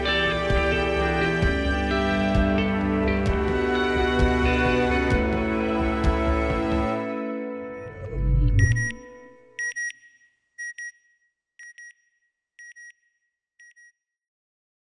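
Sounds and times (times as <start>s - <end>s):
music ending on low boom: 7.8s - 9.2s
short electronic beeps: 7.8s - 11.0s.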